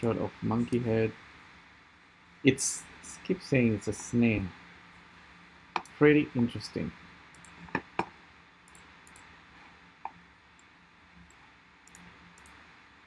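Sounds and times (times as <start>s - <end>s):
faint room hiss: 0.0s - 13.0s
computer clicks: 7.3s - 9.4s, 10.0s - 12.6s.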